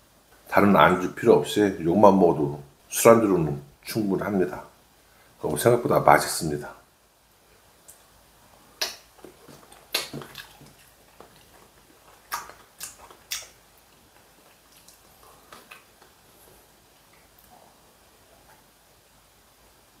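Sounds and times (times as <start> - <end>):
person chewing: 8.7 - 17.7.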